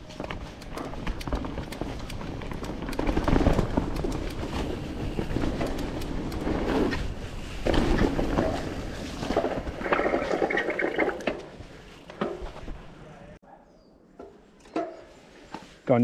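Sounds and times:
bike rattling and clicking: 0:00.0 - 0:12.5
bike tyres rumbling on dirt: 0:00.0 - 0:13.0.

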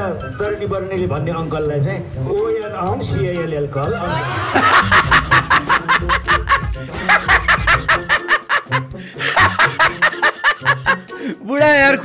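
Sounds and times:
person laughing heartily: 0:04.0 - 0:11.4.

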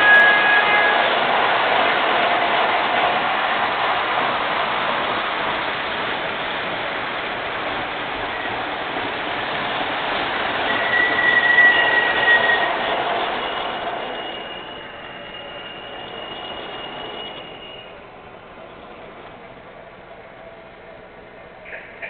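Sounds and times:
brief high squeal: 0:00.0 - 0:01.1, 0:10.6 - 0:18.0
model train running on track: 0:00.0 - 0:22.0.

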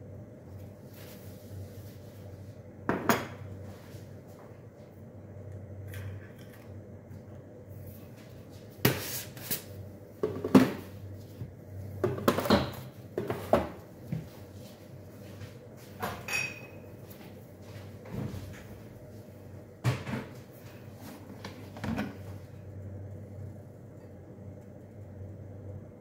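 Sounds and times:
kitchen items knocking and bumping: 0:10.2 - 0:10.9, 0:12.0 - 0:13.8, 0:19.8 - 0:20.4.

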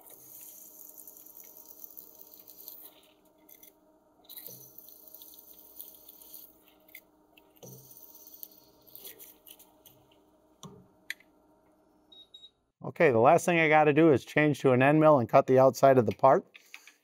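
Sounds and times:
brush sweeping metal chips: 0:00.0 - 0:03.7, 0:04.3 - 0:06.9.

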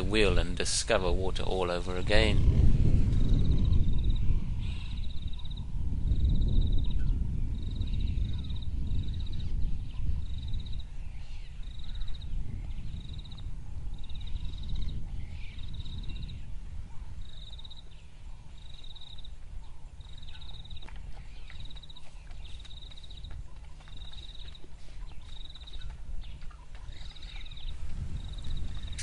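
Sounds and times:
low rumble: 0:01.9 - 0:10.8.

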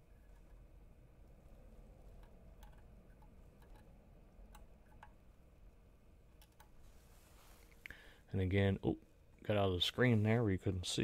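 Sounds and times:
faint metal ticks on circuit board: 0:02.1 - 0:05.2.

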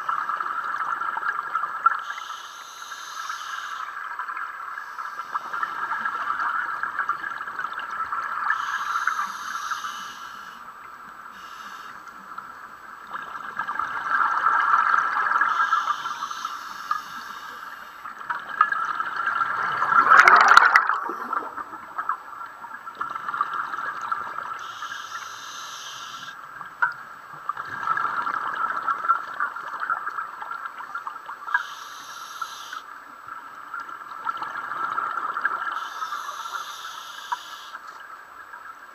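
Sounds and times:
regulator hissing: 0:02.0 - 0:03.9, 0:08.5 - 0:10.6, 0:11.4 - 0:12.0, 0:15.5 - 0:18.1, 0:24.6 - 0:26.4, 0:31.6 - 0:32.8, 0:35.8 - 0:37.8
exhaled air bubbling: 0:13.1 - 0:26.4.

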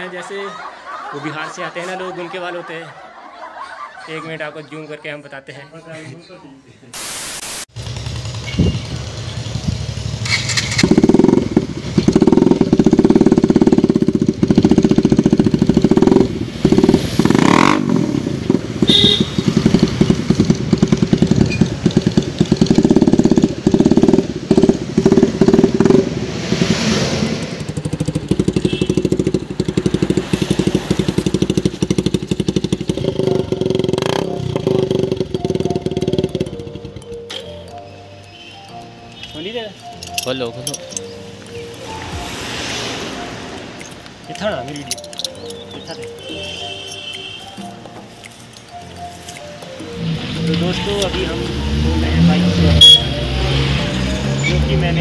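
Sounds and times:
motorcycle engine revving: 0:07.7 - 0:37.4, 0:49.8 - 0:55.0.

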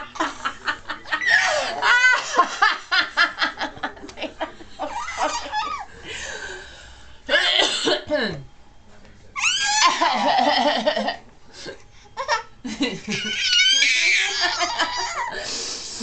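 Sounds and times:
adult laughing: 0:00.0 - 0:05.9, 0:14.1 - 0:15.4
baby laughing: 0:04.8 - 0:05.9, 0:12.2 - 0:12.5, 0:13.1 - 0:15.4.

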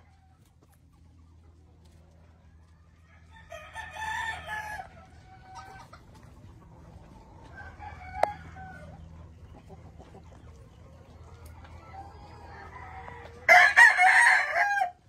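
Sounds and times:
chicken calls: 0:00.0 - 0:15.0
low steady hum: 0:00.0 - 0:15.0
rooster crowing: 0:03.0 - 0:04.9, 0:07.5 - 0:09.0, 0:12.4 - 0:15.0.

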